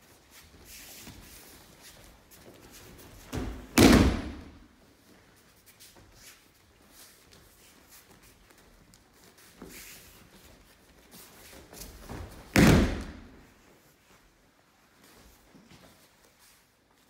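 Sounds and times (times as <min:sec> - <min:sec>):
feet scuffing on mat: 0:00.0 - 0:17.0
body slapping onto mat: 0:03.2 - 0:04.6, 0:12.1 - 0:13.4.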